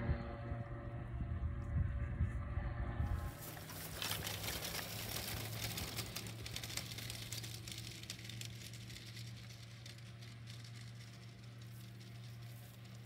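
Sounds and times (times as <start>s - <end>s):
distant plane engine humming: 0.0s - 13.0s
footsteps through dry grass: 3.0s - 8.2s.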